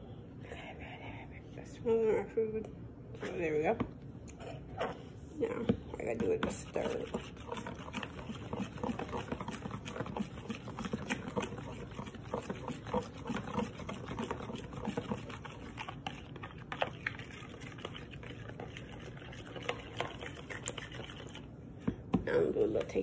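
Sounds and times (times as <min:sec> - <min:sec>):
metal utensil stirring in bowl: 0:06.0 - 0:21.5.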